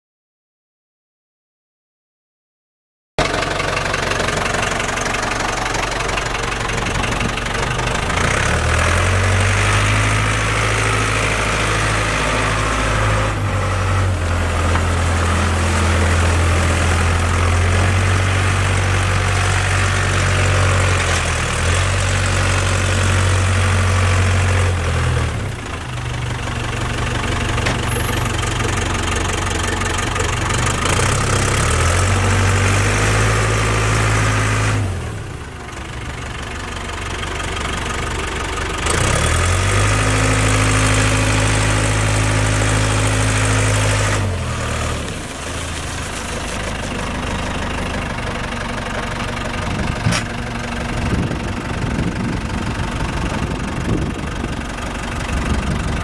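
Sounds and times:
diesel engine running: 3.2s - 56.0s.

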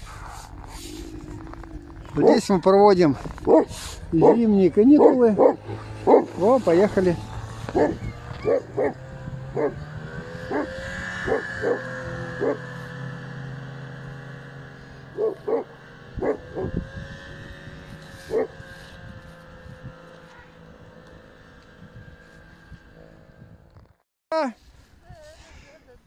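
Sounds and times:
snowmobile engine: 0.0s - 23.9s
dog barking: 3.4s - 6.5s, 7.7s - 9.0s, 9.6s - 9.8s, 10.5s - 11.8s, 12.4s - 12.6s, 15.2s - 16.8s, 18.3s - 18.6s.

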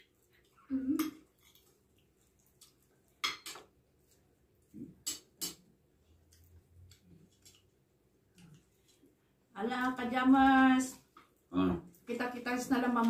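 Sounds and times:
plates and cutlery clinking: 3.2s - 3.7s.

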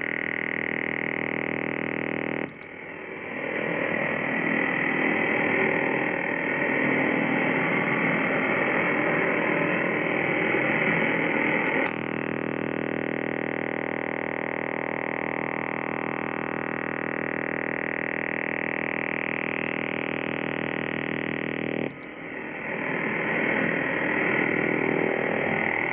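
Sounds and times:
radar buzz on radio: 0.0s - 25.9s
switch click: 2.5s - 2.8s, 21.9s - 22.2s
radio hiss and static: 8.7s - 25.9s.

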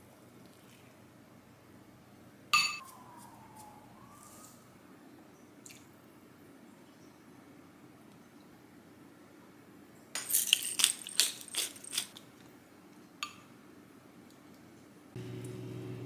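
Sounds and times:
spoon clinking against glass bowl: 2.6s - 2.8s.

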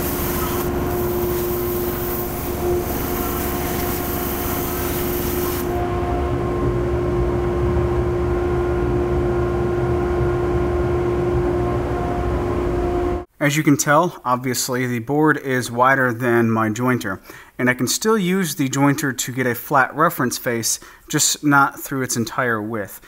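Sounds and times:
band saw cutting wood: 0.0s - 5.9s
low machine drone: 0.0s - 13.3s.

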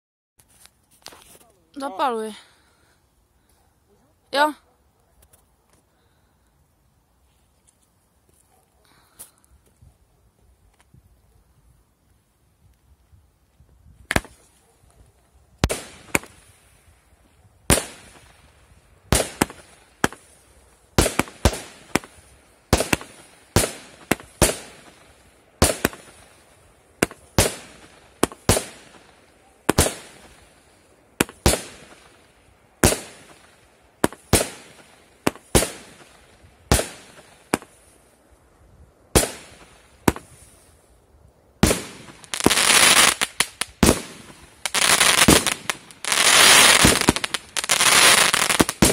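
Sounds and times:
fireworks crackling: 13.5s - 14.6s, 15.5s - 38.3s, 39.0s - 48.9s
fireworks bangs: 19.1s - 20.3s, 21.0s - 25.0s, 27.0s - 30.4s, 31.2s - 32.2s, 32.8s - 37.8s, 39.1s - 40.4s, 41.6s - 48.9s.

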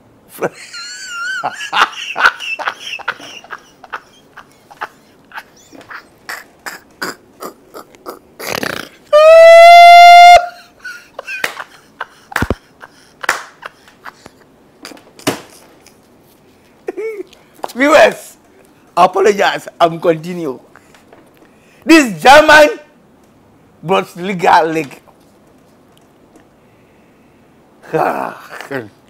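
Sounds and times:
man laughing in breathy bursts: 0.3s - 9.4s, 10.1s - 16.0s, 16.8s - 17.4s
loud high held tone: 9.2s - 10.7s.

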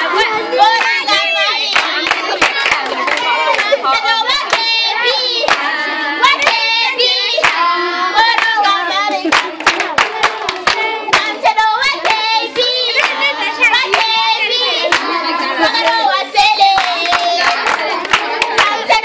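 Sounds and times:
children singing: 0.0s - 19.0s
hand clapping: 1.7s - 3.8s, 5.4s - 5.7s, 6.3s - 6.7s, 7.4s - 7.6s, 8.3s - 13.2s, 13.9s - 14.2s, 14.8s - 15.1s, 16.6s - 19.0s.

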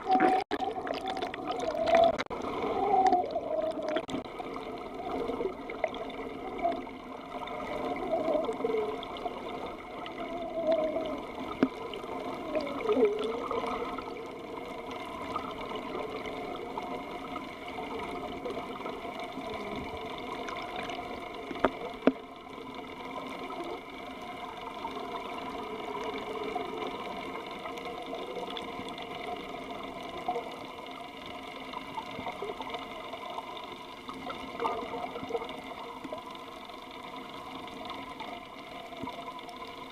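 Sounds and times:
muffled underwater hum: 0.0s - 39.9s.

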